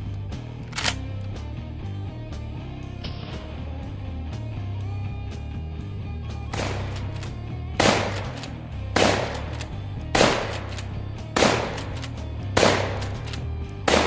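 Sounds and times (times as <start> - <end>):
shotgun shots echoing: 6.5 - 14.0.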